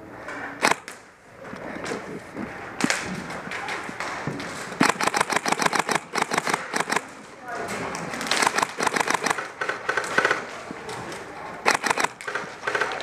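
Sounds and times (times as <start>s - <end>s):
airsoft gun shots: 4.8s - 7.1s, 8.3s - 10.5s, 11.7s - 13.0s.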